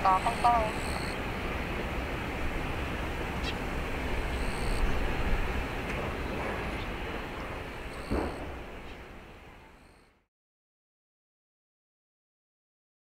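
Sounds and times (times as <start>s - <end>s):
jet airliner taxiing: 0.0s - 10.0s.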